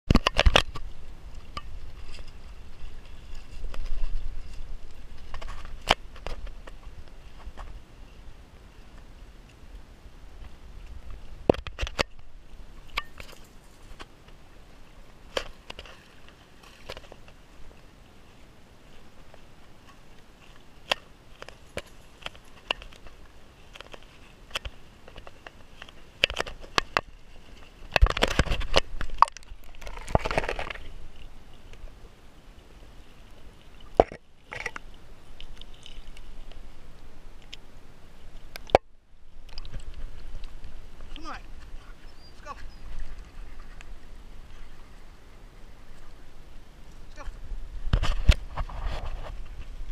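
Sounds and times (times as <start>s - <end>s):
creek water splashing: 0.1s - 49.9s.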